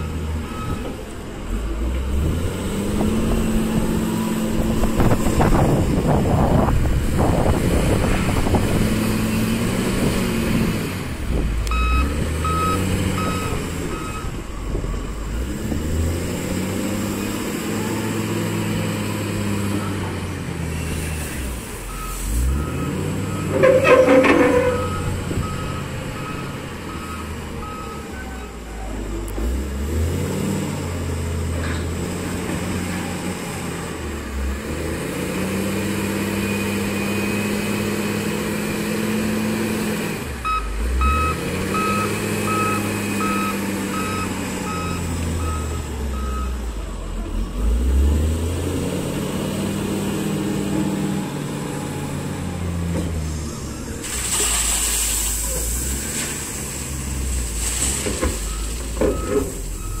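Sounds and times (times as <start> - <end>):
diesel engine revving: 0.0 - 60.0
reversing alarm beeping: 11.7 - 14.4, 21.9 - 28.6, 40.4 - 46.6, 58.5 - 60.0
gravel rattling into truck bed: 54.0 - 59.8.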